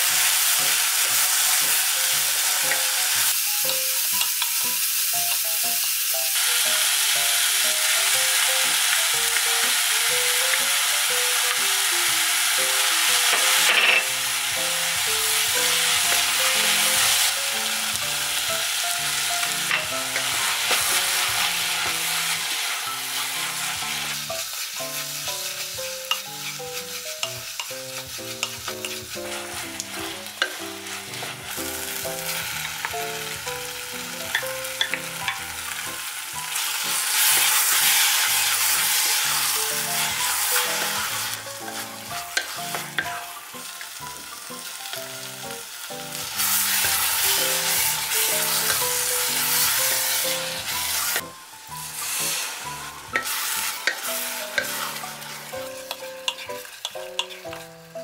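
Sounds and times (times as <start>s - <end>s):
vegetables sizzling in a pot: 0.0s - 58.0s
wooden spatula scraping and tapping: 55.8s - 57.6s.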